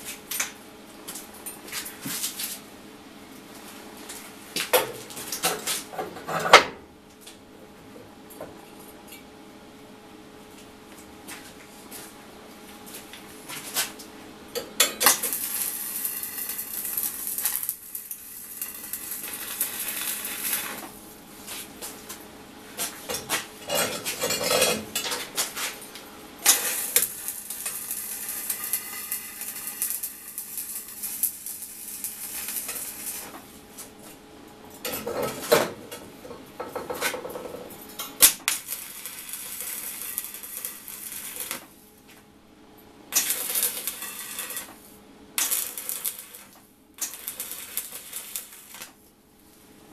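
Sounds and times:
welding arc crackling and sizzling: 14.8s - 21.9s, 22.9s - 33.6s, 38.0s - 41.7s, 43.1s - 49.0s.

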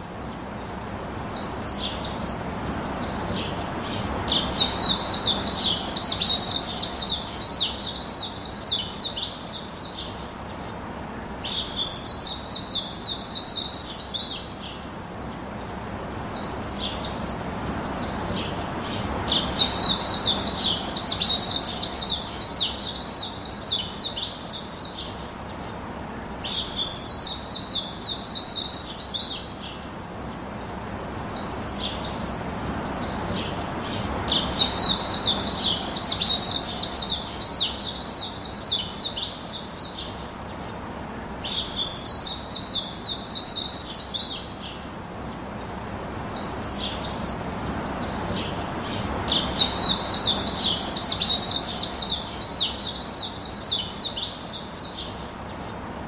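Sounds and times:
bird chirping trills: 30.4s - 44.8s, 45.4s - 55.9s.

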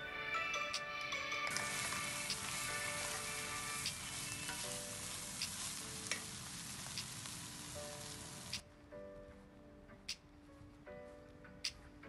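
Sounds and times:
soft music: 0.0s - 12.0s
food sizzling in a pan: 1.4s - 8.6s.

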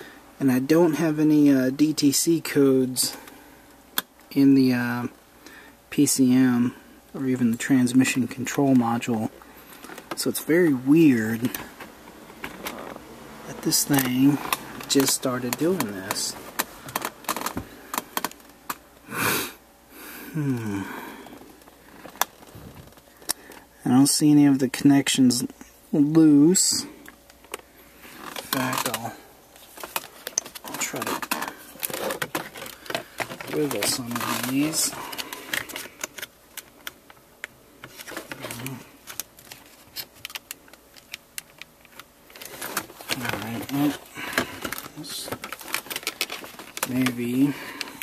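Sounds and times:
plastic parts clicking and rattling: 8.7s - 10.4s, 11.4s - 18.8s, 21.6s - 23.7s, 28.2s - 48.0s
man humming hmm: 19.1s - 21.4s
man sniffing: 19.1s - 21.4s.

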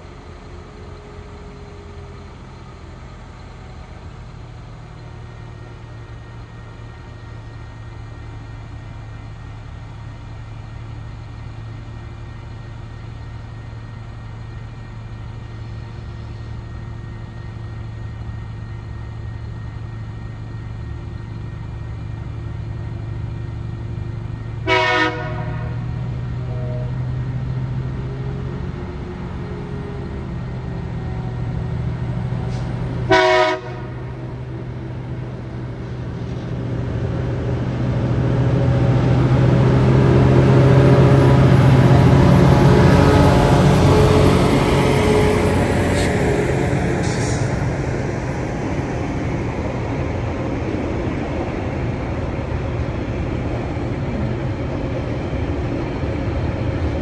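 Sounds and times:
diesel locomotive engine hum: 0.0s - 57.0s
train horn blasts: 24.6s - 27.1s, 33.1s - 34.2s, 42.0s - 46.3s.

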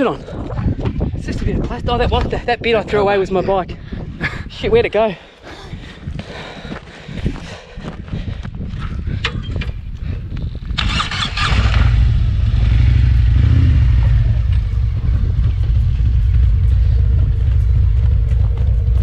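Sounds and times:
motorcycle engine starting and running: 10.6s - 19.0s.

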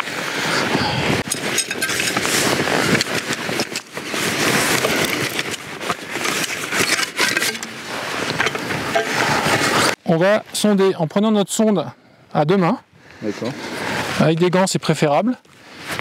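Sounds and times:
steady rushing noise: 0.0s - 10.0s
metal probe sections rattling and clicking: 1.2s - 2.3s, 4.7s - 9.2s.

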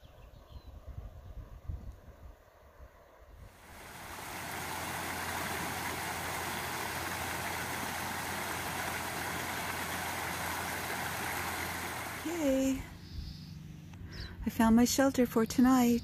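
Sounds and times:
stream running over rocks: 3.6s - 12.9s.

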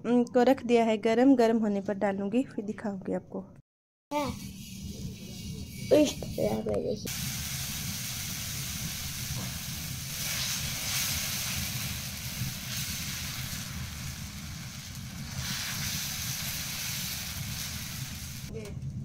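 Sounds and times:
batter sizzling on griddle: 4.2s - 18.5s.

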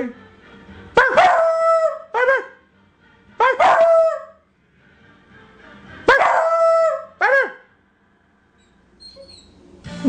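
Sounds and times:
puppy howling: 1.0s - 2.4s, 3.4s - 4.4s, 6.1s - 7.6s.

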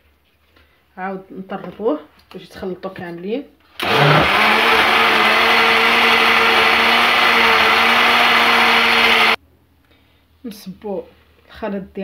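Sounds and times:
electric blender running: 3.8s - 9.4s.

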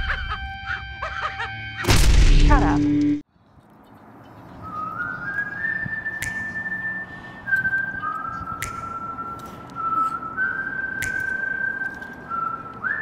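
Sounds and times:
whistled melody music: 4.6s - 13.0s.

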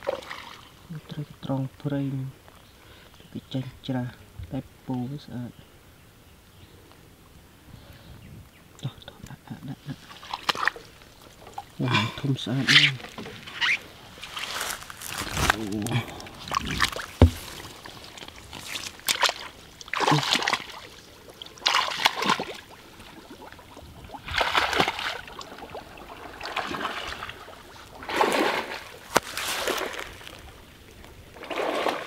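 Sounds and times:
water splashing and sloshing: 0.0s - 0.9s, 9.8s - 32.0s
sharp knock: 17.2s - 17.6s.

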